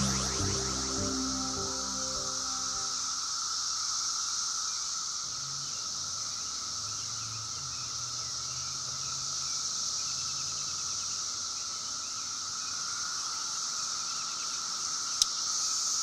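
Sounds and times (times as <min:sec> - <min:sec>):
low steady buzz: 0:00.0 - 0:03.3
cicadas droning: 0:00.0 - 0:16.0.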